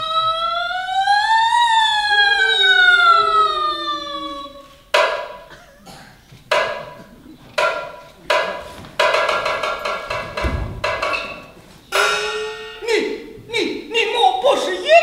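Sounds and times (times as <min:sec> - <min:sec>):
opera percussion strikes: 0:04.9 - 0:05.6, 0:06.5 - 0:13.4.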